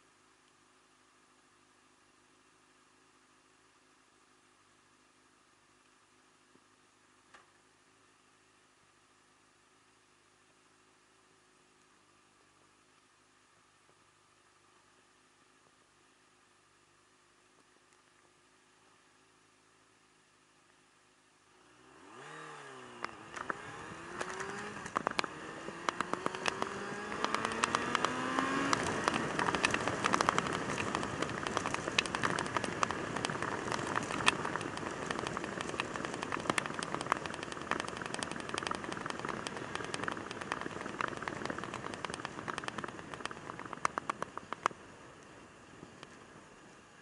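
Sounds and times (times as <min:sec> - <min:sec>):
motorcycle engine revving: 0:21.6 - 0:44.2
wind and road noise: 0:21.6 - 0:47.0
sharp ticks: 0:23.0 - 0:44.8.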